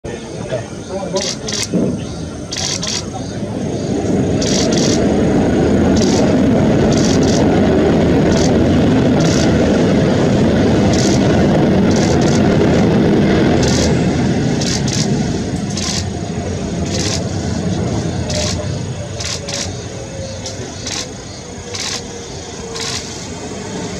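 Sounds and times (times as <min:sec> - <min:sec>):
jet engines rumbling: 0:00.0 - 0:23.9
short high clicks: 0:01.2 - 0:01.7, 0:02.5 - 0:03.1, 0:15.7 - 0:16.1, 0:21.7 - 0:22.1.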